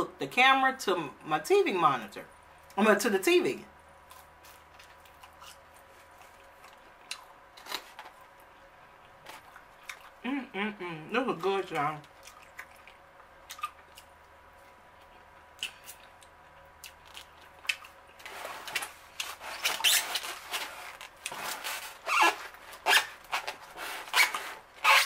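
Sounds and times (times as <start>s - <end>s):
chewing food: 4.0s - 10.2s, 11.4s - 19.5s.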